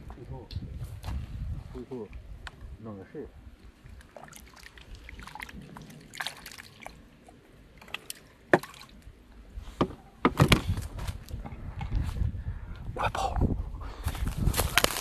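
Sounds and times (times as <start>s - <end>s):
water sloshing and splashing: 3.6s - 9.9s
sharp splashes: 3.9s - 9.0s.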